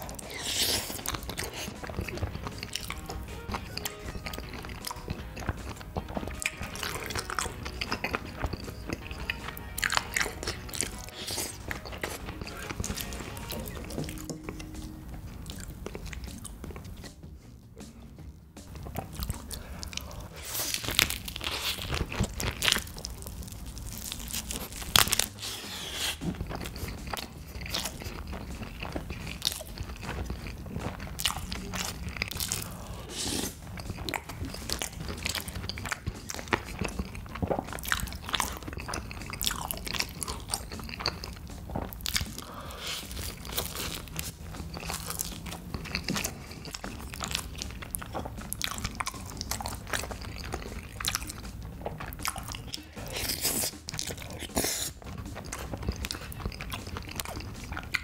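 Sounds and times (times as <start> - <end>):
person chewing crunchy food: 0.0 - 58.0.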